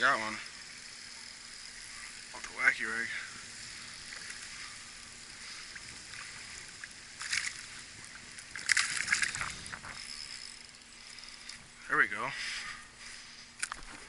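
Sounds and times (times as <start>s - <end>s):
fish splashing at water surface: 4.0s - 10.0s.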